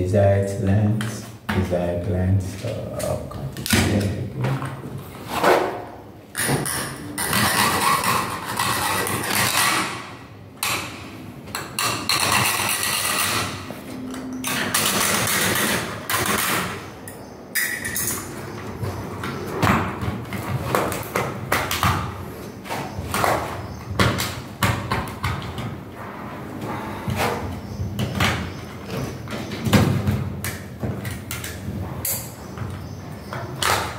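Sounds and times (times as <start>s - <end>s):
hacksaw cutting metal: 6.6s - 10.0s, 11.8s - 13.6s.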